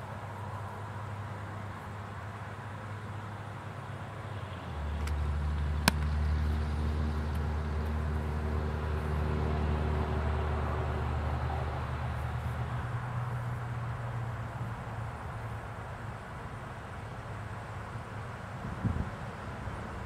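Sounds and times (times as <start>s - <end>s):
vehicle engine hum: 0.0s - 20.0s
sharp smack: 5.8s - 6.1s.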